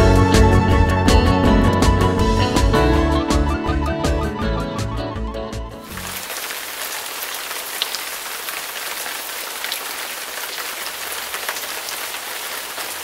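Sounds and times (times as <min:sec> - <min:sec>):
steady rain hissing: 0:05.8 - 0:13.0
water drips: 0:05.9 - 0:13.0.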